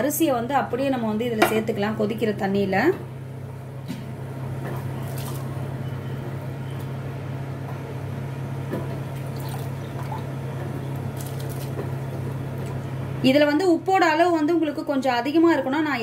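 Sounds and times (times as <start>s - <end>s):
steady low hum: 0.0s - 16.0s
boiling water bubbling: 3.2s - 13.1s.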